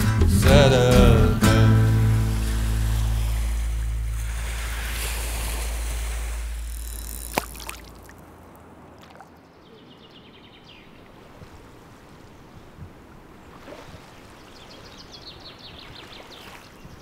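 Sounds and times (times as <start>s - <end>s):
river water rumbling: 0.5s - 17.0s.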